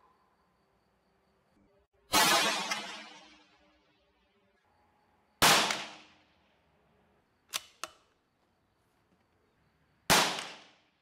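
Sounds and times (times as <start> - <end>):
rifle shots: 2.1 - 3.5, 5.4 - 6.2, 10.1 - 10.8
sharp rifle clicks: 7.5 - 8.2.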